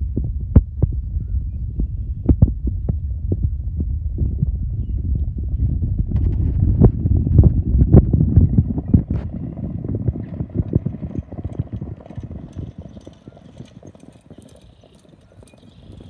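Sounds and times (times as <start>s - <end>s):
horse hoofbeats on dirt: 4.4s - 16.0s.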